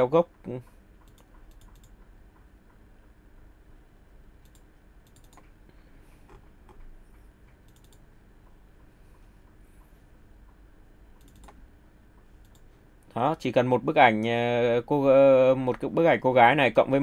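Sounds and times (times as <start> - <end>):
low room noise: 0.0 - 17.0
computer mouse clicking: 1.0 - 2.5, 4.4 - 5.6, 6.3 - 6.9, 7.5 - 8.6, 11.2 - 11.6, 12.2 - 12.7.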